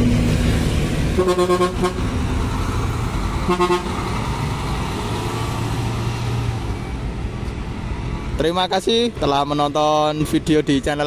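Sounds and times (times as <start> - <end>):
bus engine running: 0.0 - 11.0
bus horn tooting: 1.1 - 2.2, 3.4 - 4.1.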